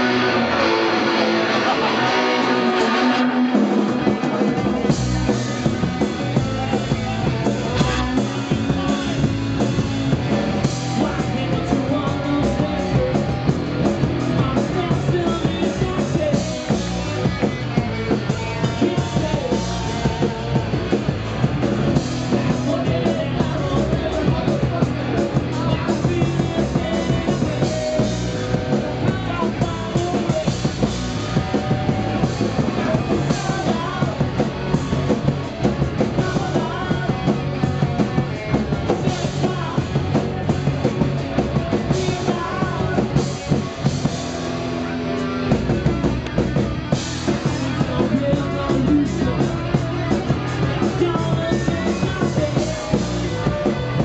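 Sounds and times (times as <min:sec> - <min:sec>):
person singing: 0:00.0 - 0:44.1, 0:44.8 - 0:54.0
bass guitar: 0:00.0 - 0:54.0
drum kit: 0:00.0 - 0:54.0
electric guitar: 0:00.0 - 0:54.0.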